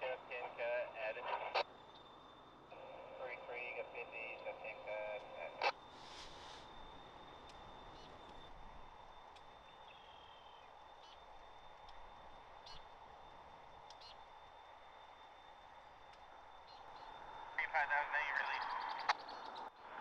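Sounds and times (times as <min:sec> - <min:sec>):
thin steady high tone: 0:00.1 - 0:19.9
faint bird chirps: 0:06.0 - 0:15.0, 0:16.0 - 0:20.0.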